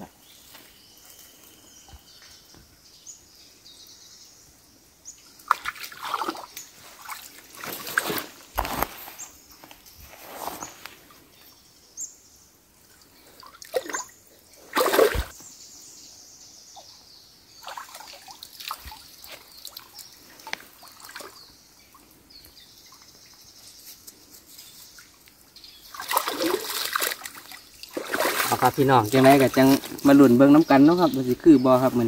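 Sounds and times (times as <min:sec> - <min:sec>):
stream water splashing and trickling: 0:04.5 - 0:11.6, 0:12.6 - 0:15.4, 0:16.8 - 0:32.0
legs wading in water: 0:05.4 - 0:08.2, 0:14.7 - 0:15.3, 0:17.6 - 0:21.4, 0:25.8 - 0:31.2.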